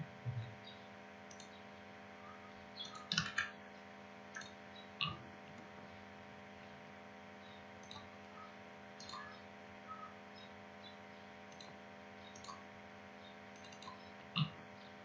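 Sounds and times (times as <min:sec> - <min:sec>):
low electrical hum: 0:00.0 - 0:15.0
computer mouse clicks: 0:01.3 - 0:01.6, 0:02.8 - 0:03.5, 0:04.3 - 0:05.6, 0:07.8 - 0:08.1, 0:09.0 - 0:09.4, 0:11.5 - 0:12.6, 0:13.5 - 0:14.5.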